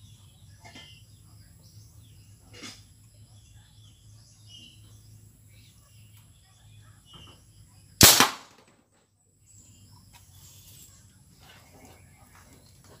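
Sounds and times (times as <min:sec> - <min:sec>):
faint bird chirps: 0:00.0 - 0:08.0
sharp gun shot: 0:08.0 - 0:08.6.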